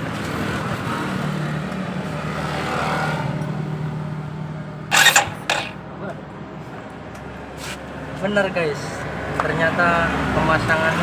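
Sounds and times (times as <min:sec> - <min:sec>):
starter motor whirring: 0:04.9 - 0:05.8.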